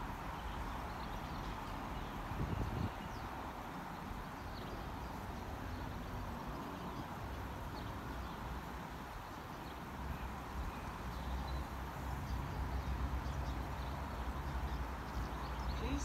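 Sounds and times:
wind gust on microphone: 0:01.1 - 0:04.3.

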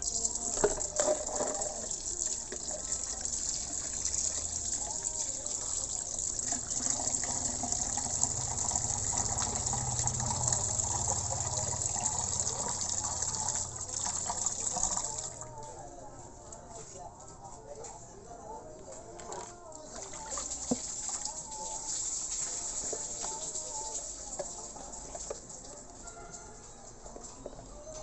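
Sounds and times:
water running from a tap: 0:00.0 - 0:15.3, 0:20.0 - 0:25.8.

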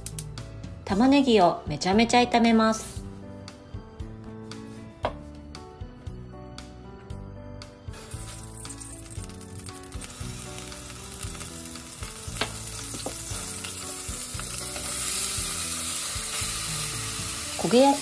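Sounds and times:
oil sizzling in a pot: 0:07.9 - 0:18.0
onion frying: 0:07.9 - 0:18.0.

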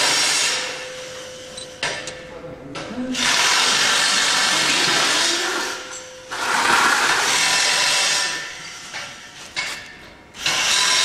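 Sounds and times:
handheld power tool running: 0:03.2 - 0:08.4, 0:10.4 - 0:11.0.

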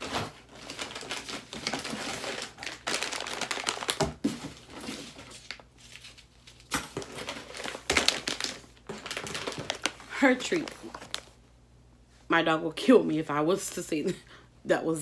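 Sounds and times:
plastic bags crinkling and rustling: 0:00.0 - 0:11.4.

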